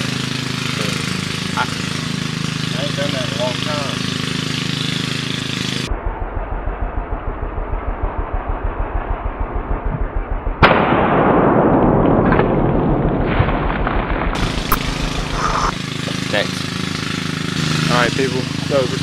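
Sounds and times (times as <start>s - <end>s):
muffled pulsing noise: 5.8s - 11.2s, 12.6s - 16.7s
shotgun shot: 10.6s - 13.5s.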